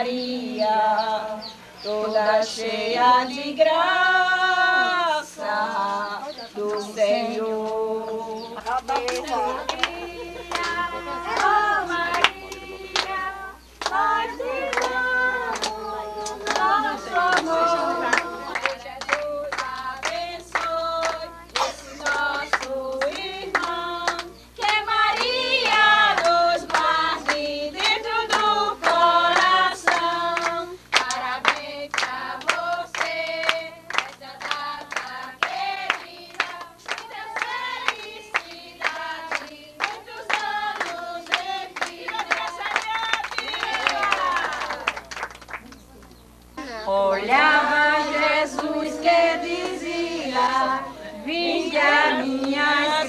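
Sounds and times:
adults and children singing: 0.0 - 45.0, 46.9 - 53.0
hands clapping in rhythm: 8.6 - 45.9, 47.4 - 50.7, 51.8 - 53.0.

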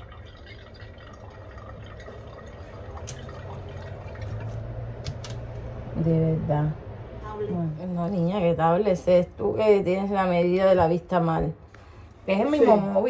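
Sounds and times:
running water: 0.0 - 5.0
low hum: 0.0 - 10.5.

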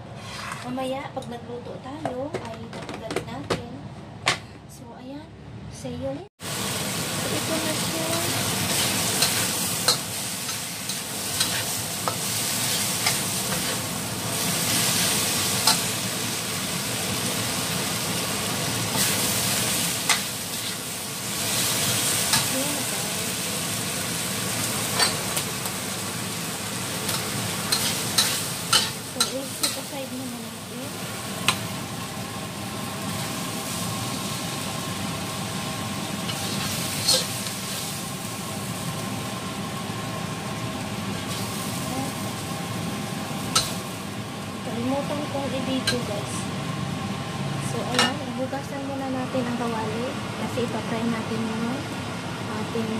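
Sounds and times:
metal spatula clanking and scraping: 0.2 - 0.7, 24.9 - 25.3, 27.1 - 29.9, 36.3 - 37.4
food sizzling in wok: 6.4 - 52.9.

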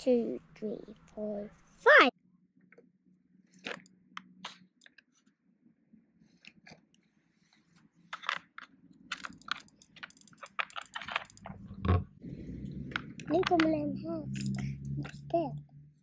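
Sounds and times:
plastic game pieces clicking: 8.1 - 11.4.

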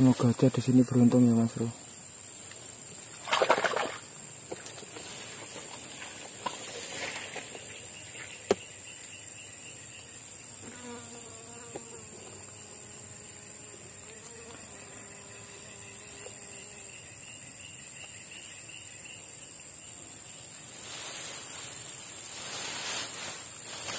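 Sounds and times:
insects droning: 0.0 - 23.9
dry grass and leaves rustling: 4.5 - 8.6, 20.5 - 23.9.

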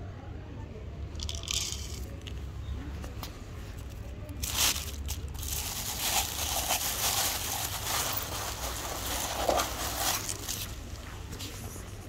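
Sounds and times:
cats crunching dry kibble: 3.8 - 11.6.

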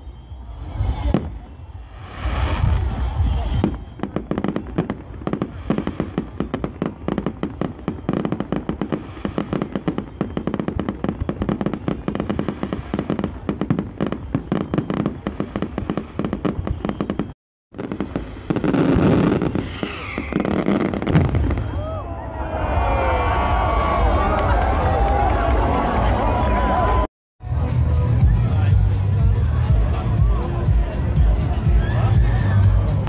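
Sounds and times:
fireworks crackling and popping: 0.8 - 21.8.

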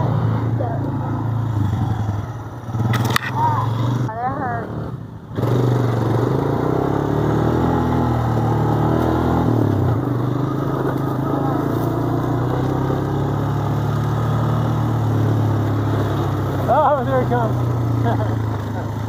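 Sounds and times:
atv engine running: 0.0 - 19.0.

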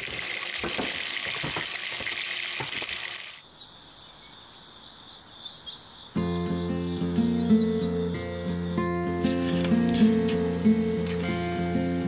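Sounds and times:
bacon sizzling and popping: 0.0 - 3.3, 9.2 - 12.0
insects chirping: 2.4 - 12.0.

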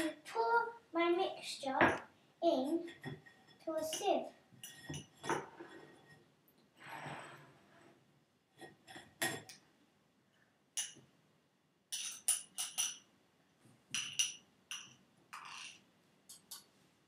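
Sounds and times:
spoon clinking against sieve and bowl: 11.9 - 13.1, 14.0 - 16.7.

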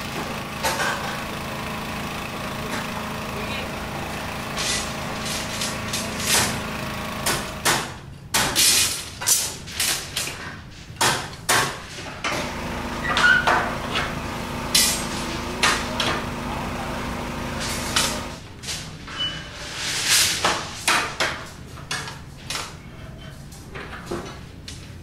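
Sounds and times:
small petrol engine running: 0.0 - 7.9, 12.3 - 18.4.

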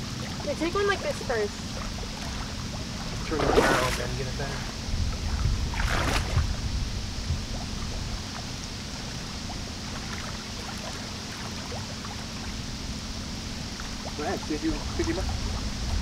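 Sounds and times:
low rumble: 0.0 - 10.9, 12.4 - 16.0
water lapping along shore: 0.0 - 16.0
boot splashing in shallow water: 3.2 - 4.2, 5.7 - 6.5.

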